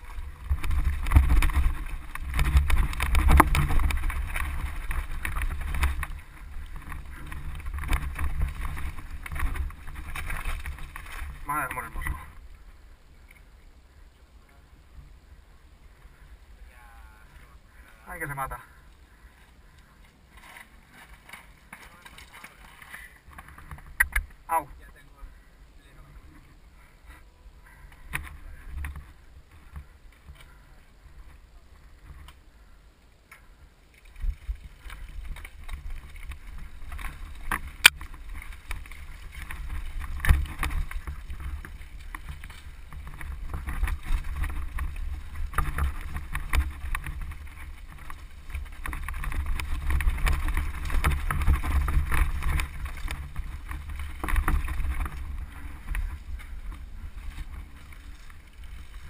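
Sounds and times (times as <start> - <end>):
tyres on loose stones: 0.0 - 12.5, 17.8 - 24.6, 33.4 - 59.0
bike rattling: 0.0 - 24.7, 25.3 - 59.0.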